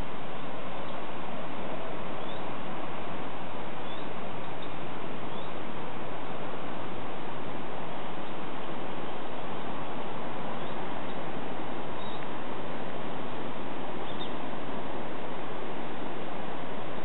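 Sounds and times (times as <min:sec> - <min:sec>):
steady rushing hiss: 0:00.0 - 0:17.0
faint high bird chirps: 0:02.2 - 0:02.5, 0:03.8 - 0:05.6, 0:12.0 - 0:12.3, 0:14.0 - 0:14.4.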